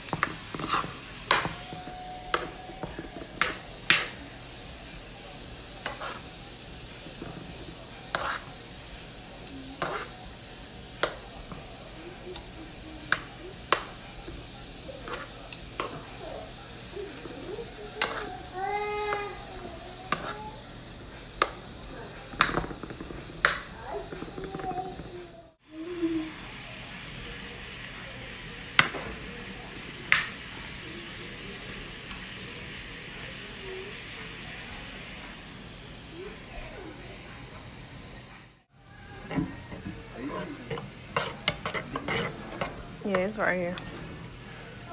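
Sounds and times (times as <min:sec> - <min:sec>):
food sizzling in pan: 0:00.0 - 0:44.9
spoon knocking against pan: 0:00.1 - 0:04.1.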